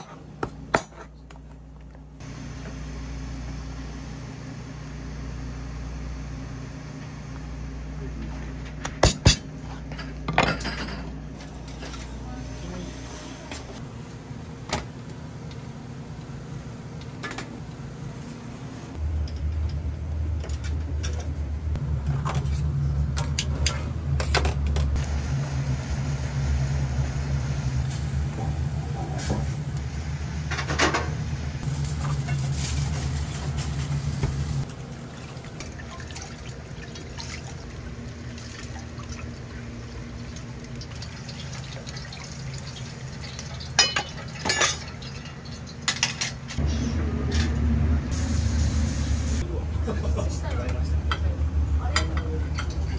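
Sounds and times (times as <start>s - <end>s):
water running into a vessel: 34.7s - 45.1s.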